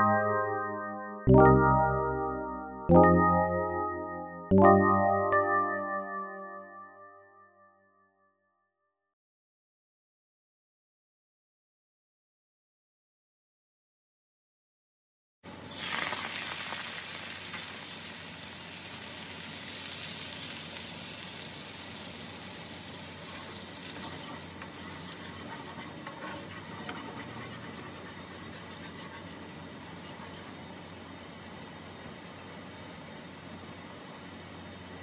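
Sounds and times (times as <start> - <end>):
onions sizzling in hot oil: 15.6 - 26.9
sauce simmering with soft hiss: 15.6 - 34.8.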